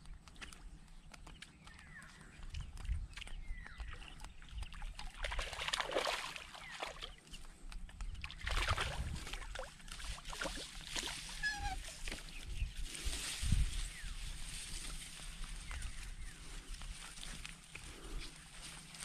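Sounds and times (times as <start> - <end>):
seawater sloshing and splashing: 4.7 - 7.2, 8.2 - 12.1.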